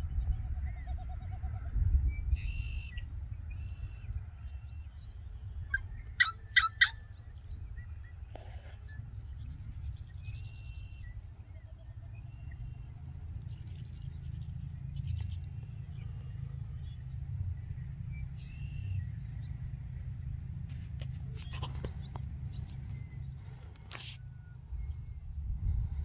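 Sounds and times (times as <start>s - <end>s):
blackbird harsh calls: 5.5s - 7.4s
low rumble: 9.0s - 26.0s.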